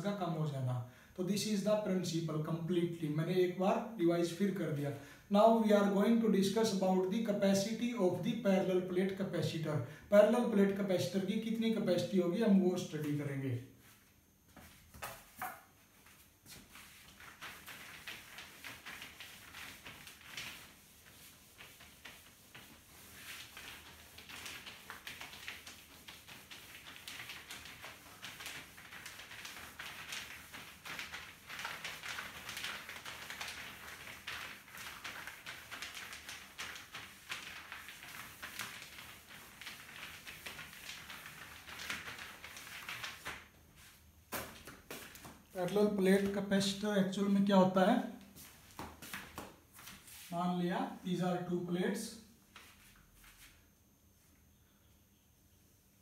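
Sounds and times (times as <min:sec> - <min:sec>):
cloth scrubbing a whiteboard: 0:04.1 - 0:53.7.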